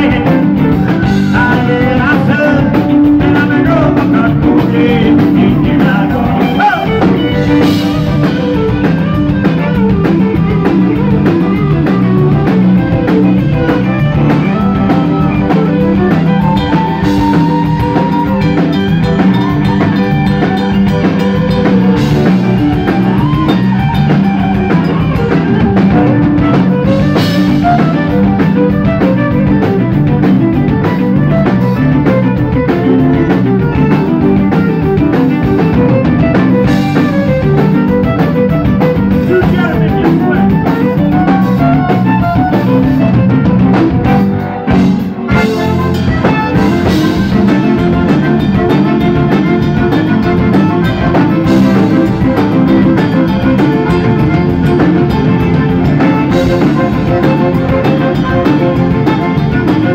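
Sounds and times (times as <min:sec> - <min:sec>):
accordion: 0:00.0 - 0:59.9
bass guitar: 0:00.0 - 0:59.9
drum kit: 0:00.0 - 0:59.9
electric guitar: 0:00.0 - 0:59.9
fiddle: 0:00.0 - 0:59.9.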